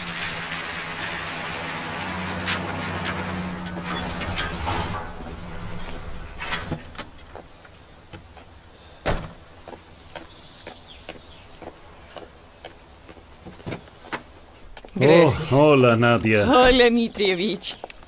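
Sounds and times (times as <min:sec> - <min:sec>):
car engine hum: 0:00.0 - 0:08.1.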